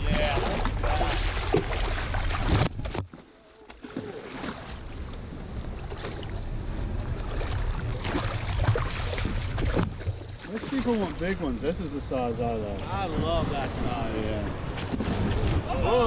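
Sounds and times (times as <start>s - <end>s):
fish thrashing water splashing: 0.1s - 2.7s, 7.4s - 11.2s
wind on microphone: 12.3s - 16.0s.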